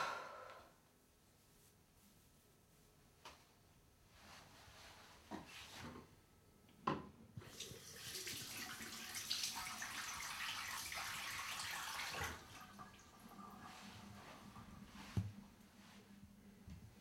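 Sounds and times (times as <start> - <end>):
tap running water into sink: 7.4 - 13.6.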